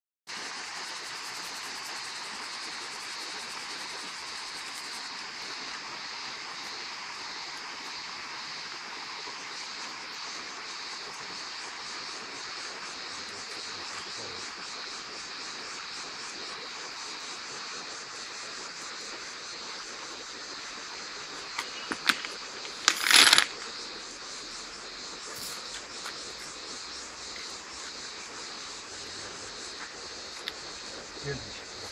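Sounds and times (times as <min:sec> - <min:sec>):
crickets chirping: 0:00.3 - 0:31.9
stones knocking and clattering: 0:21.6 - 0:23.7.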